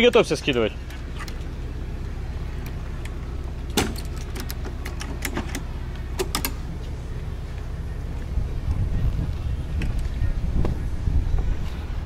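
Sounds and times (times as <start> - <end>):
boat engine idling: 0.0 - 12.0
deck gear clicks and knocks: 2.6 - 6.6.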